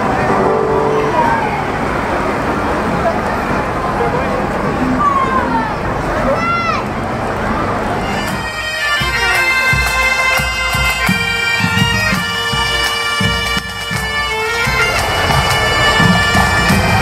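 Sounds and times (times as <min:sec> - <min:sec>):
bagpipes playing melody: 0:00.3 - 0:02.1, 0:08.0 - 0:17.0
drum beats: 0:08.3 - 0:17.0.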